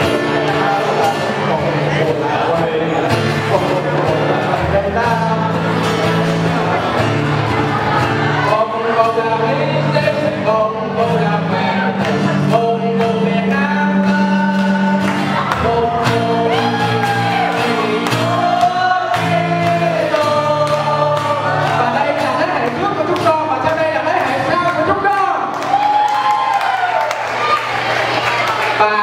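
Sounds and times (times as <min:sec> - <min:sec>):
men and women singing: 0:00.0 - 0:23.0
acoustic guitar: 0:00.0 - 0:29.0.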